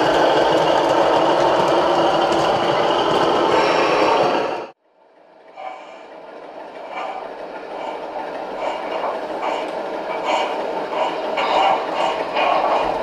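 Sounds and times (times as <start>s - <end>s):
model train running with clicking: 0.0s - 3.9s, 5.2s - 13.0s
loud rolling rumble: 0.0s - 13.0s.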